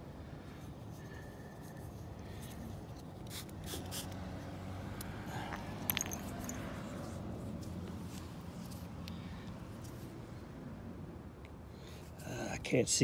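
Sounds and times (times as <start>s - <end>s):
spray bottle spritzing: 3.2s - 4.2s
coin clinking: 5.7s - 6.8s.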